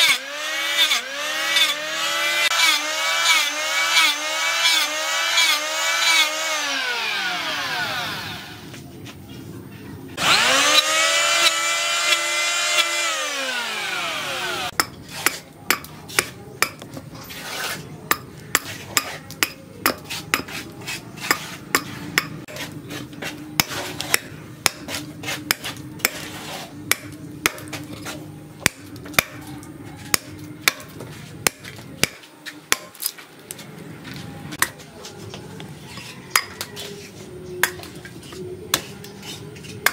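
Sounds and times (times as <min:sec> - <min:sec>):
electric hand planer: 0:00.0 - 0:08.7, 0:10.2 - 0:14.8
machete chopping wood: 0:23.6 - 0:26.3, 0:26.9 - 0:27.9, 0:28.6 - 0:29.4, 0:30.1 - 0:33.2.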